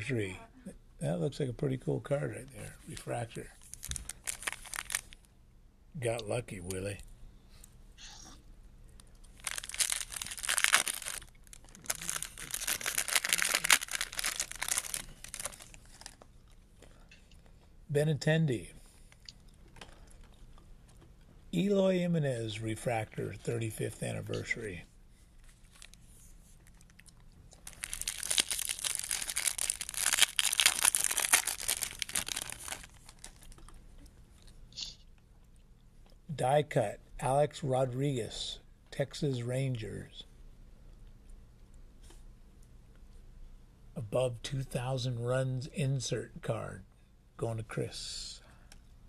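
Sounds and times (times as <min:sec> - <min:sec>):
foil wrapper crinkling and tearing: 0:03.0 - 0:05.3, 0:09.3 - 0:16.3, 0:25.4 - 0:26.0, 0:26.6 - 0:33.7.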